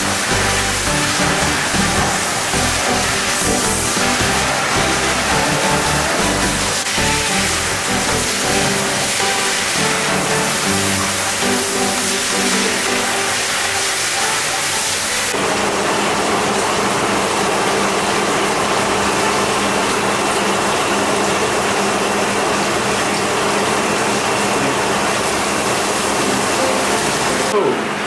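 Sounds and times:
music: 0:00.0 - 0:15.3, 0:26.1 - 0:27.8
water spraying from shower head: 0:00.0 - 0:21.9, 0:23.0 - 0:27.6.

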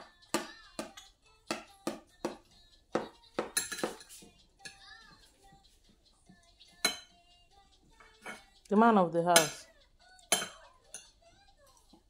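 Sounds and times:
cutlery clinking against plates: 0:03.0 - 0:04.9, 0:06.8 - 0:07.2, 0:08.0 - 0:08.6, 0:09.3 - 0:11.3.

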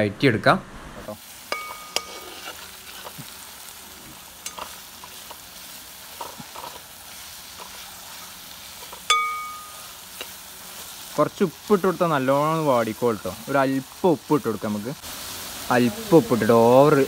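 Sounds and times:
onions sizzling in oil: 0:01.0 - 0:17.0
ringing metal clink: 0:01.5 - 0:02.2, 0:09.1 - 0:09.9
metal spoon scraping a pan: 0:01.5 - 0:03.4, 0:04.1 - 0:11.1.

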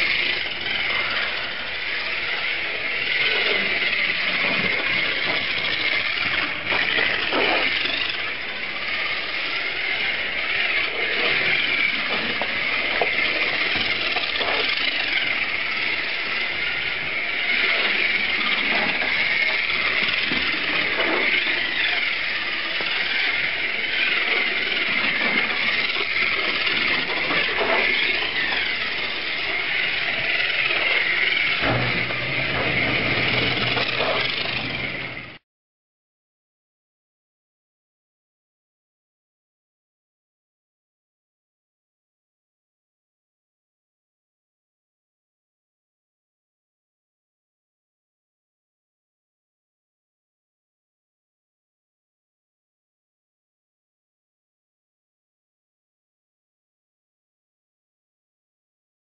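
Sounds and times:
slot car motors whining: 0:00.0 - 0:35.4.

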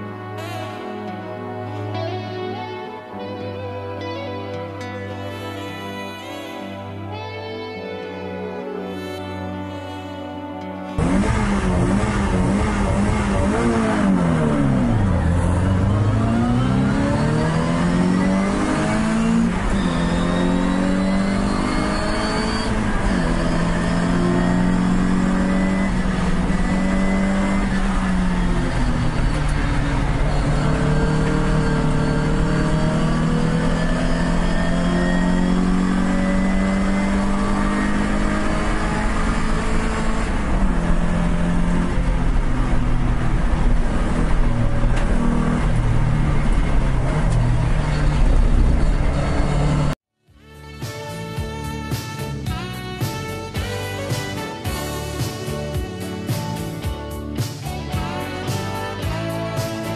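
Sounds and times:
other race cars: 0:11.0 - 0:50.0
race car engine at full throttle: 0:11.0 - 0:50.0.

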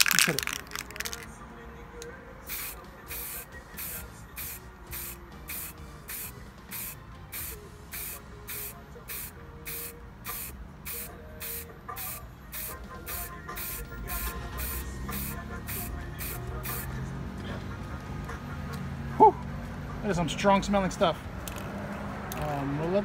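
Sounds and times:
spray paint can hissing: 0:00.0 - 0:01.3, 0:02.5 - 0:16.9.

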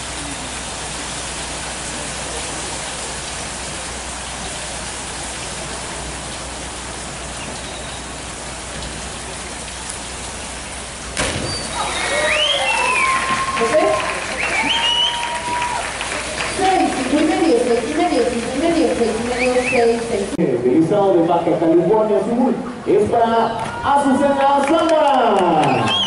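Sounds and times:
diver splashing into water: 0:11.1 - 0:16.5
voices calling out: 0:11.5 - 0:20.4.

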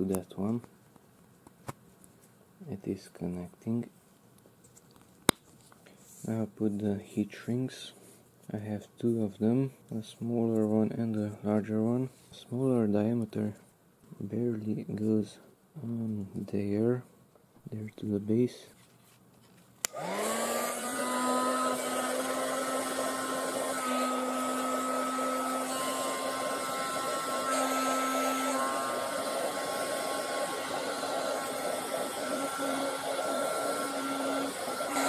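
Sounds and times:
fan motor whine: 0:19.8 - 0:35.0.

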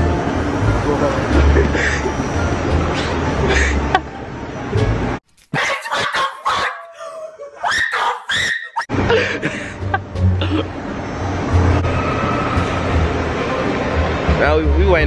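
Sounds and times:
busy mall hum: 0:00.0 - 0:05.2, 0:08.9 - 0:15.0
young people laughing: 0:01.4 - 0:02.2, 0:05.8 - 0:10.1.

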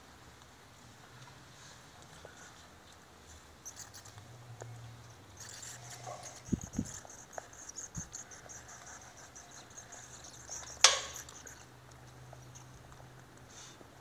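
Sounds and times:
bats chittering: 0:05.4 - 0:11.8
sharp click: 0:10.6 - 0:11.4.

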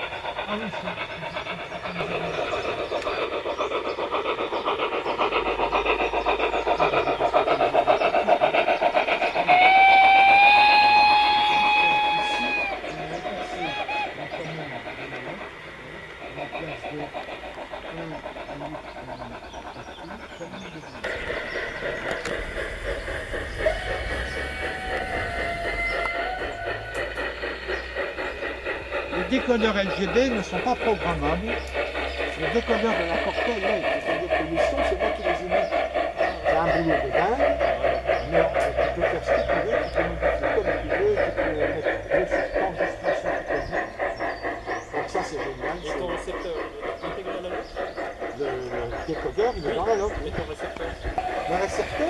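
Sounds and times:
steam chuffs from loudspeaker: 0:00.0 - 0:52.0
steam whistle: 0:09.5 - 0:12.8, 0:23.6 - 0:27.1.

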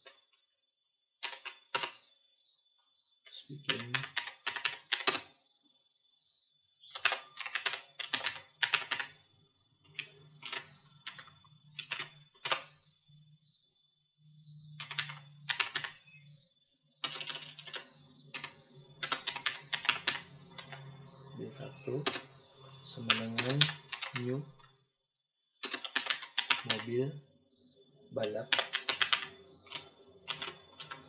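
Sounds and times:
computer keyboard typing: 0:01.2 - 0:02.1, 0:03.5 - 0:05.4, 0:06.9 - 0:09.2, 0:09.8 - 0:12.8, 0:14.8 - 0:16.2, 0:17.0 - 0:22.4, 0:23.0 - 0:24.7, 0:25.6 - 0:27.2, 0:28.2 - 0:31.0
faint low hum: 0:01.9 - 0:25.3.

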